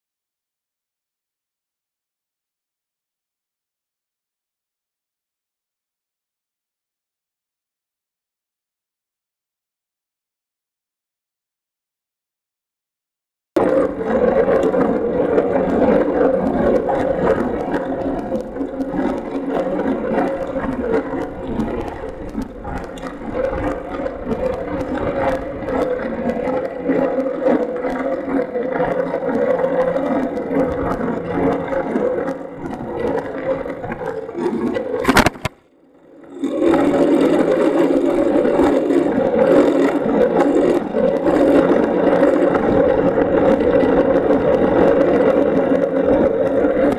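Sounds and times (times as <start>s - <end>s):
bicycle riding rumble and rattle: 13.6s - 46.9s.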